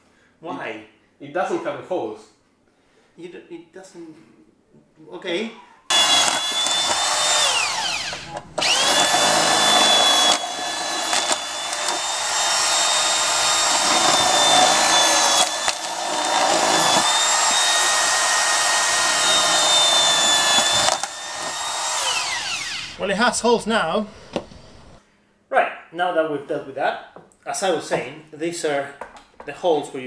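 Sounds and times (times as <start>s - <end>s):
electric drill whining: 5.9s - 25.0s.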